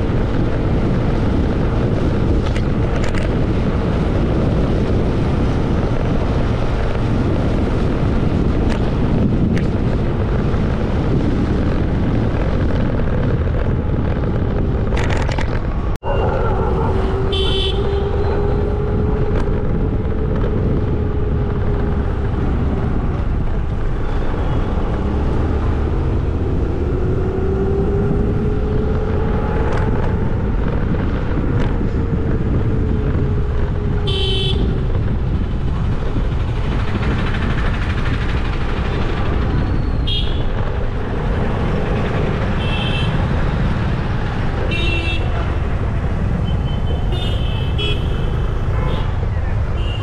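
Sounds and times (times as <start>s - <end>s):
wind and road noise: 0.0s - 50.0s
vehicle horns tooting: 17.0s - 18.5s, 34.0s - 34.8s, 40.0s - 40.5s, 42.6s - 43.2s, 44.7s - 45.5s, 46.4s - 49.2s, 49.8s - 50.0s.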